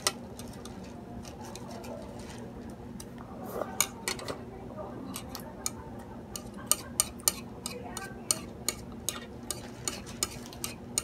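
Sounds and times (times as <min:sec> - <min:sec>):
chopsticks tapping a plate: 0:05.1 - 0:11.0.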